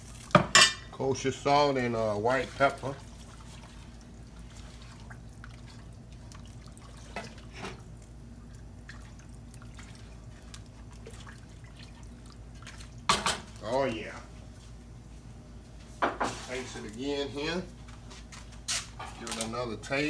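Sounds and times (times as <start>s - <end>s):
liquid sloshing and dripping: 0.0s - 0.6s, 1.4s - 14.7s.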